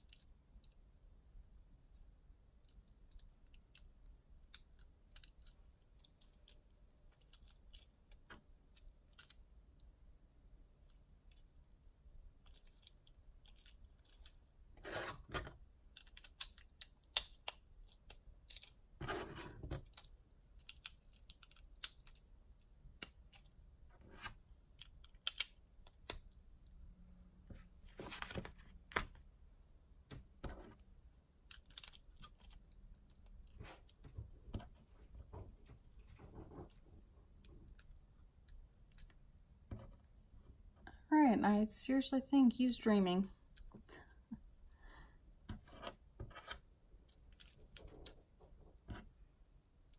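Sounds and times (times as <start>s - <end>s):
plastic bricks clicking: 15.3s - 18.8s, 19.7s - 23.6s, 24.7s - 26.4s, 31.4s - 34.1s.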